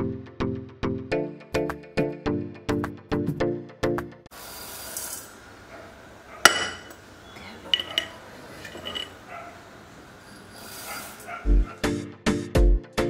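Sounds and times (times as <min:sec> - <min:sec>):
lentils pouring into steel pot: 0:04.4 - 0:05.4
glassy clinks: 0:07.7 - 0:09.2.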